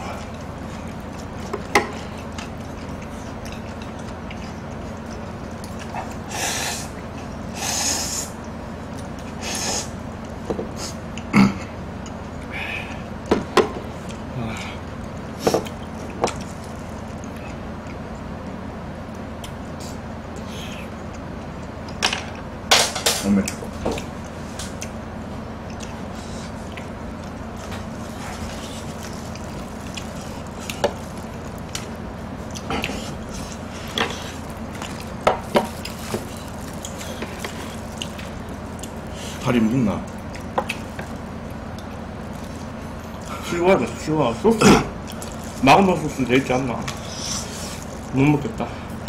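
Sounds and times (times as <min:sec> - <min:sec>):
low background hum: 0:00.0 - 0:49.0.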